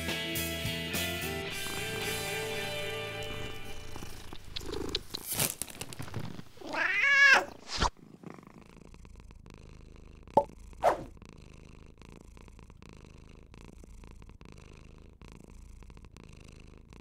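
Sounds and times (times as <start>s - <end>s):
rustling: 4.0s - 8.0s
small clicks: 4.3s - 6.4s
cat meowing: 6.6s - 7.7s.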